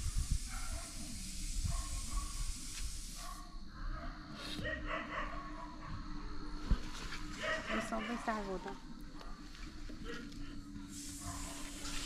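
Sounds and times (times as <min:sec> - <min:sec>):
steady hiss: 0:00.0 - 0:03.7, 0:09.6 - 0:12.0.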